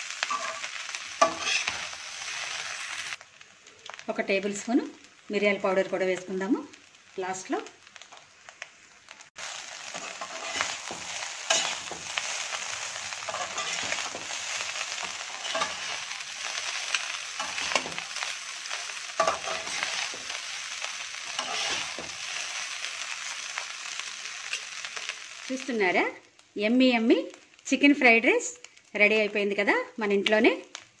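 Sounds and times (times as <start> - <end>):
rice sizzling in a wok: 0.0 - 31.0
spatula scraping and clicking pan: 0.2 - 2.6, 9.9 - 12.5, 13.2 - 20.6, 21.3 - 22.4.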